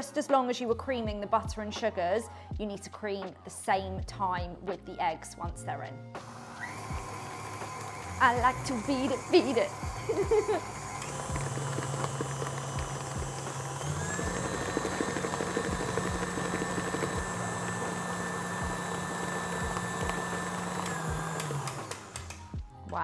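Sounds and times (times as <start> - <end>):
stand mixer running: 6.2 - 22.4.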